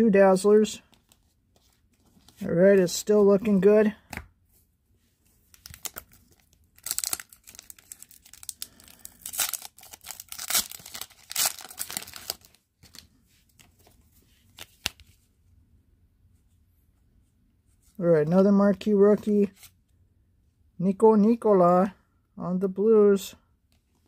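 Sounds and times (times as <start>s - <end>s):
plastic wrapper tearing and crinkling: 5.5s - 13.1s.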